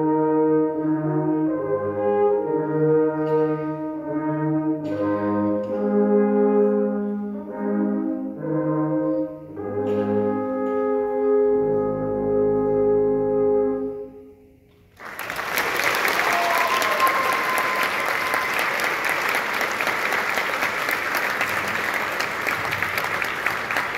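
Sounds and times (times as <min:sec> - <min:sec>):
audience applause: 0:15.0 - 0:23.9
rising whistle from crowd: 0:16.2 - 0:18.8.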